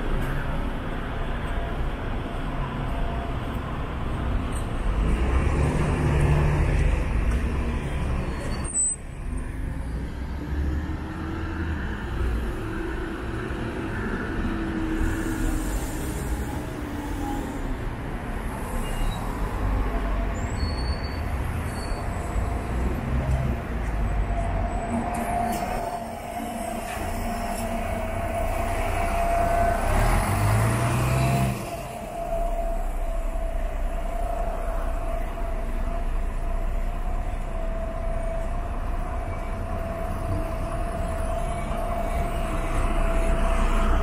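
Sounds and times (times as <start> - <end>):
cars passing: 0.0 - 20.6, 21.2 - 44.0.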